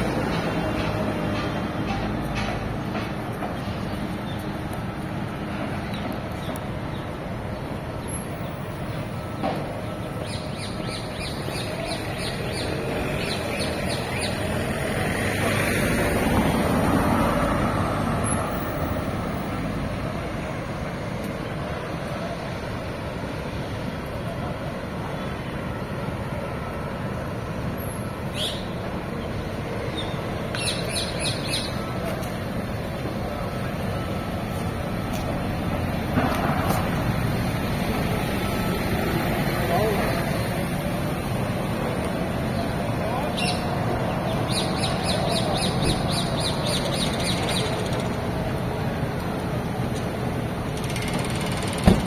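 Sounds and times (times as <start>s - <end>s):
street traffic rumble: 0.0s - 52.0s
bird chirping: 30.0s - 31.8s.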